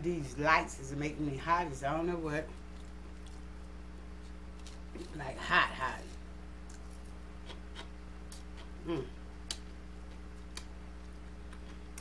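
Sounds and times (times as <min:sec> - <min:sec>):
person humming: 0:08.8 - 0:09.2.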